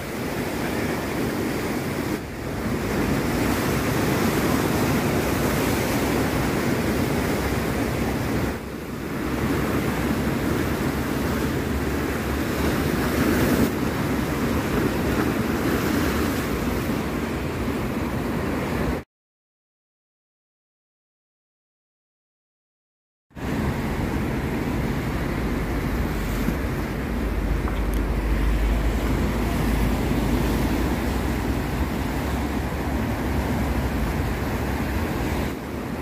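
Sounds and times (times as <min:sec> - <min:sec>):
waves breaking over concrete blocks: 0:00.0 - 0:17.1.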